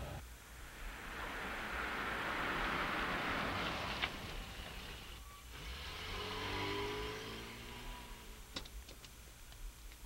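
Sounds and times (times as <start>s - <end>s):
car engine accelerating: 5.6s - 8.5s.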